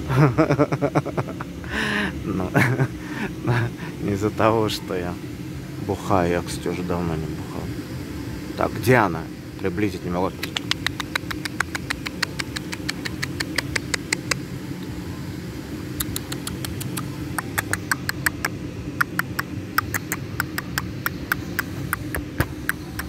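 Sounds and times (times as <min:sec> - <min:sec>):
low background hum: 0:00.0 - 0:23.0
squirrel alarm chatter: 0:10.3 - 0:14.6, 0:15.9 - 0:23.0.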